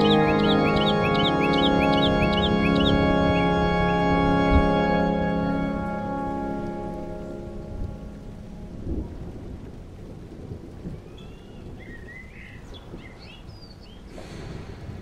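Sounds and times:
bird chirps: 0:00.0 - 0:03.5
organ chord: 0:00.0 - 0:09.0
hiss: 0:14.1 - 0:15.0.

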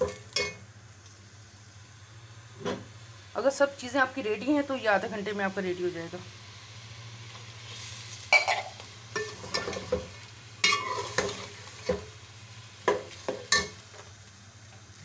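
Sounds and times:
faint sizzle of frying: 0:00.0 - 0:15.0
metal spoon scraping a pot: 0:10.6 - 0:12.0.

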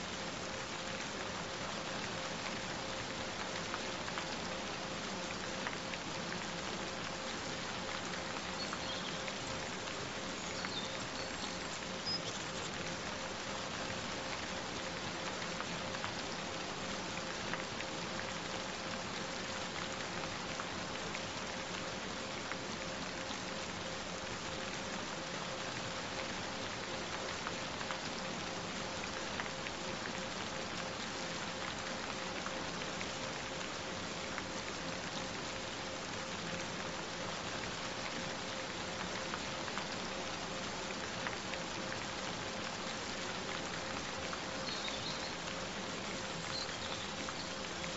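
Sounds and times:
steady rain falling: 0:00.0 - 0:47.9.

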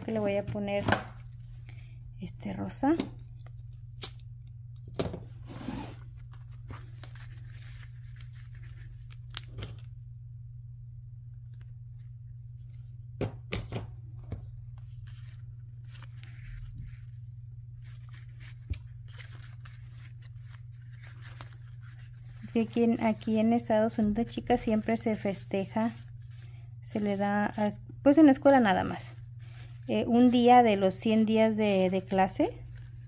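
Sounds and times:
steady low hum: 0:00.0 - 0:33.0
ribbon rustling: 0:06.0 - 0:10.0, 0:14.1 - 0:33.0.

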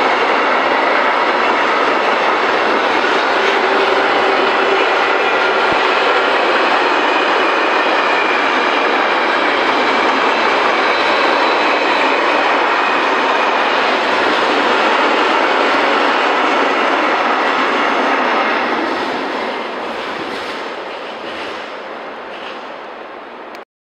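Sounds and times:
freight train wheels on track: 0:00.0 - 0:23.6.

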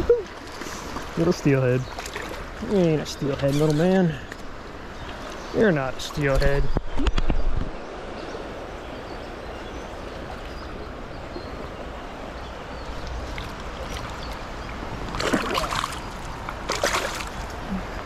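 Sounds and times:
water splashing: 0:00.0 - 0:06.7, 0:13.0 - 0:18.0
creek water rushing over rocks: 0:00.0 - 0:18.0.

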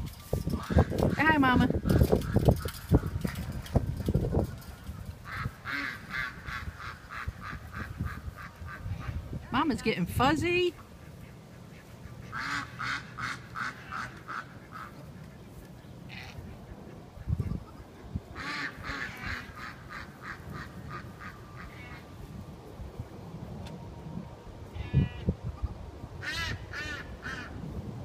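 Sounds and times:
duck quacking: 0:05.3 - 0:09.2, 0:10.8 - 0:15.4, 0:18.4 - 0:22.0.

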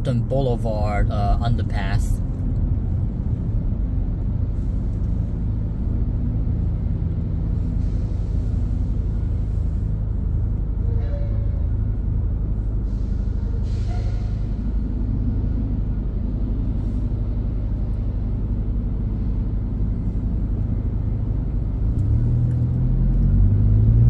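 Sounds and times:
car driving rumble inside cabin: 0:00.0 - 0:11.0, 0:14.6 - 0:24.0
passing traffic: 0:00.0 - 0:24.0.

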